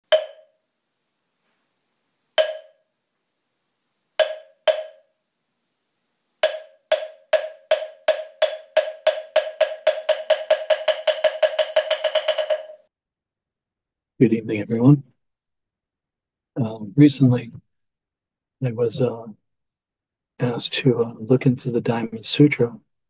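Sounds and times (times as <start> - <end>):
wooden block struck by hand: 0.0 - 0.6, 2.4 - 2.8, 4.2 - 5.1, 6.4 - 12.9.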